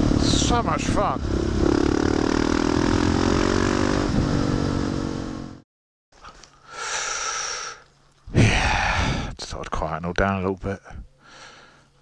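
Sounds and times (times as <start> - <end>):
motorcycle engine running: 0.0 - 5.6.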